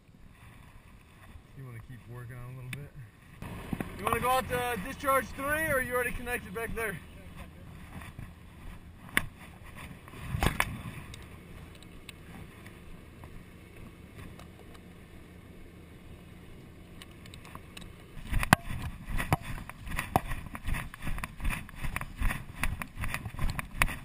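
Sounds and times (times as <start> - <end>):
fire engine running: 3.4 - 9.0.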